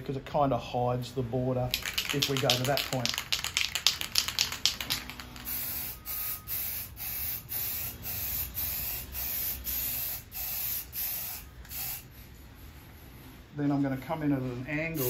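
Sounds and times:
spray can rattle: 0:01.7 - 0:12.0
spray paint can hissing: 0:01.7 - 0:12.1.

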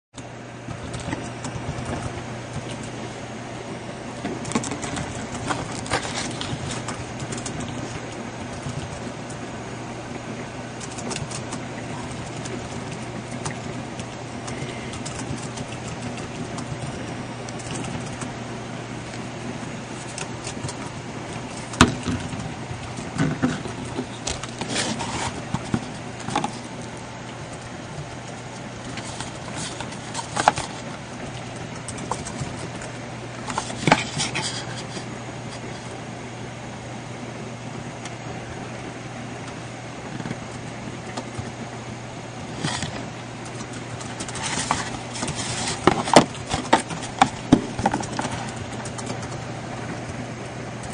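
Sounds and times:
low hum and hiss: 0:00.2 - 0:50.9
plastic tube being handled: 0:42.5 - 0:50.2.

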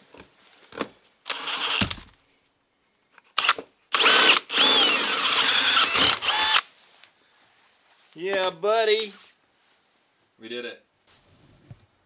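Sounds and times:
power drill boring through steel: 0:01.3 - 0:01.9, 0:03.4 - 0:06.6.

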